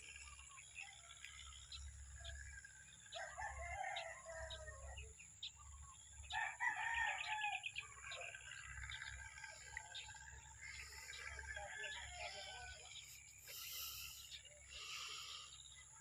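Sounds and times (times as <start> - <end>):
small birds chirping: 0.0 - 16.0
rooster crowing: 3.1 - 5.0, 6.3 - 8.3, 10.7 - 13.0.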